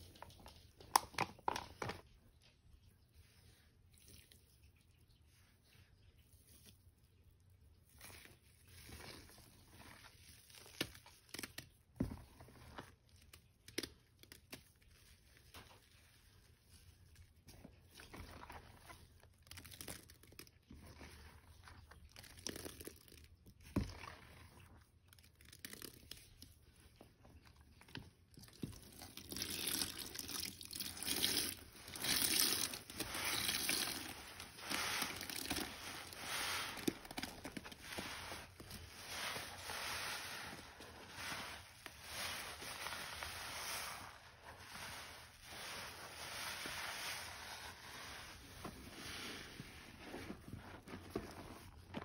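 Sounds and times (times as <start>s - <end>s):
soapy sponge squeezed: 0.0s - 52.0s
water running out: 28.9s - 40.6s.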